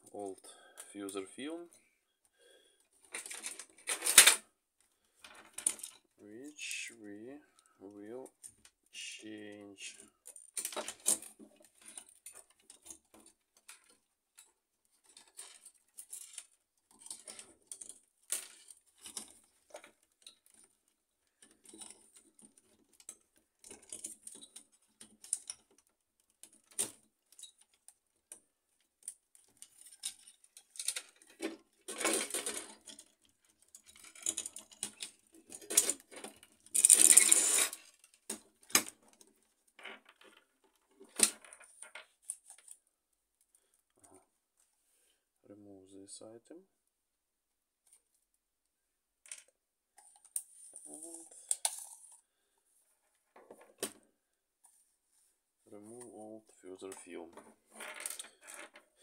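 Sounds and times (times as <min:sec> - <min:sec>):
plastic and metal parts clicking: 0:10.0 - 0:42.8.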